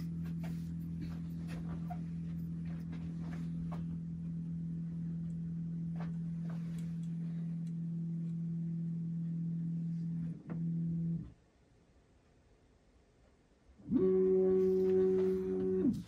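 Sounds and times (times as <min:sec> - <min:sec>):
stepper motors humming: 0:13.9 - 0:16.0.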